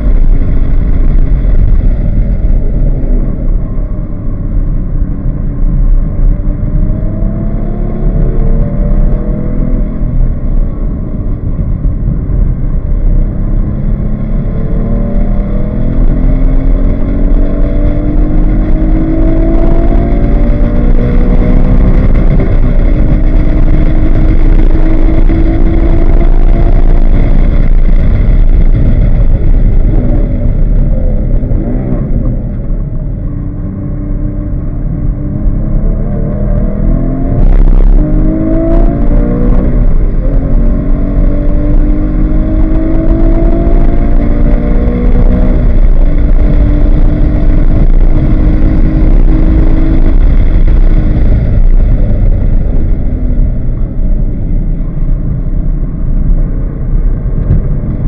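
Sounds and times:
wind noise: 0.0 - 58.0
car engine revving hard: 6.2 - 10.0, 13.3 - 33.1, 33.8 - 54.0.

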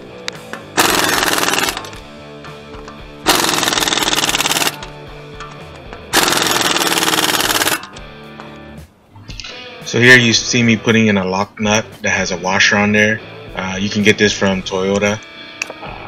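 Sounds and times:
background music: 0.0 - 16.0
impact driver rattling: 0.8 - 2.0, 3.2 - 8.0.

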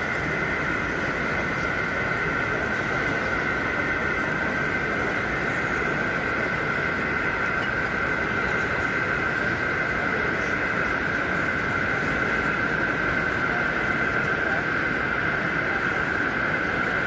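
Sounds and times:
exhibition hall din: 0.0 - 17.0
high-pitched hum: 0.0 - 17.0.

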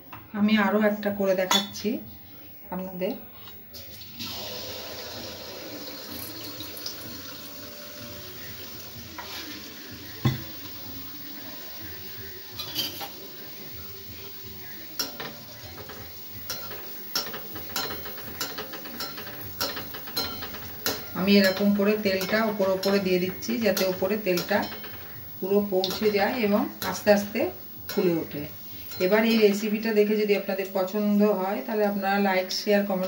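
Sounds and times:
batter sizzling in hot oil: 4.1 - 29.8
metal utensils knocking pan: 15.0 - 29.8.

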